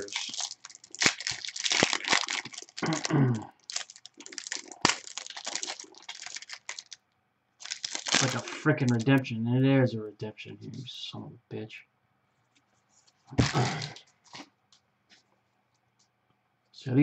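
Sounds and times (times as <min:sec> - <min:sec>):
plastic wrapper crinkling: 0:00.0 - 0:07.0, 0:07.6 - 0:09.2, 0:13.4 - 0:14.5.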